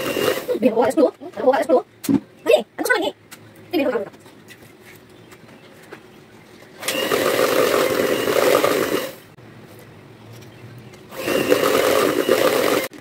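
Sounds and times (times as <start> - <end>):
electric hand mixer running: 0.0 - 0.6, 6.8 - 9.3, 11.1 - 13.0.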